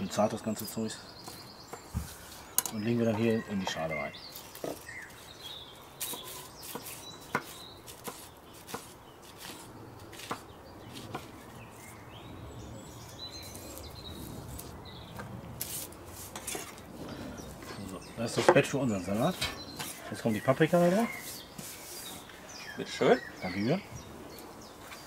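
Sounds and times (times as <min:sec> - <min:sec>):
knife chopping on wooden board: 0:06.0 - 0:11.3.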